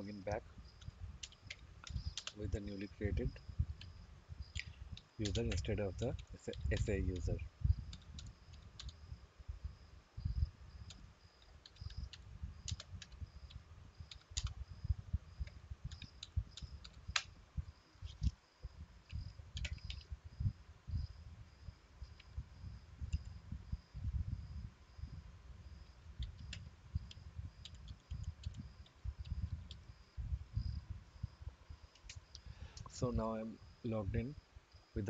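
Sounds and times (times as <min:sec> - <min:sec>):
computer keyboard typing: 0:01.2 - 0:02.7, 0:05.0 - 0:07.3, 0:07.9 - 0:09.0, 0:10.9 - 0:14.6, 0:15.9 - 0:17.3, 0:19.6 - 0:20.1, 0:26.2 - 0:29.8.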